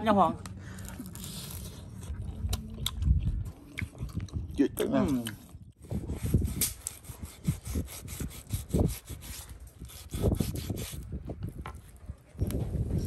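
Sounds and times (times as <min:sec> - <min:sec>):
cleaver rasping through meat: 0:05.8 - 0:11.0.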